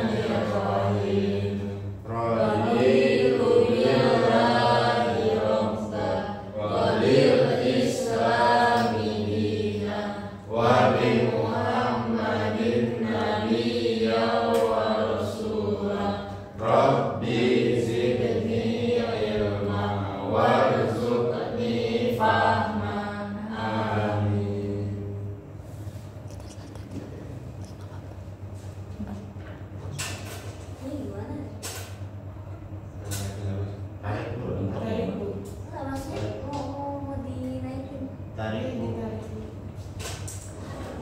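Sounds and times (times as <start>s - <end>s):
students reciting in unison: 0.0s - 25.5s.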